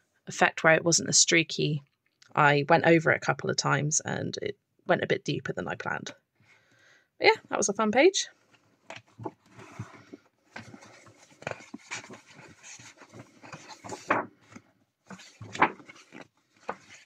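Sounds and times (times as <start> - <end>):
book pages flipping: 8.4 - 17.0.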